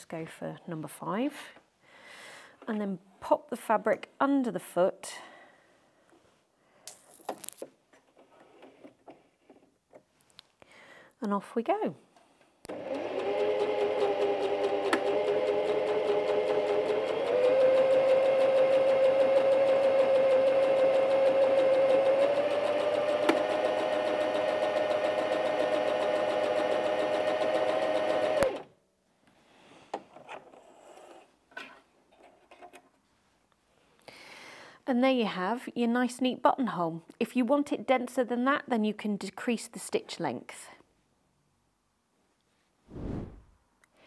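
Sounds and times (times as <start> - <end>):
sewing machine stitching: 12.7 - 28.7.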